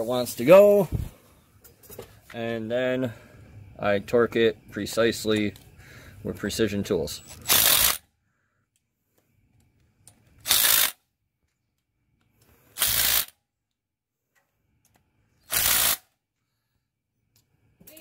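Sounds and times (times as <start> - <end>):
impact wrench bursts: 7.2 - 8.1, 10.4 - 11.0, 12.7 - 13.4, 15.4 - 16.2.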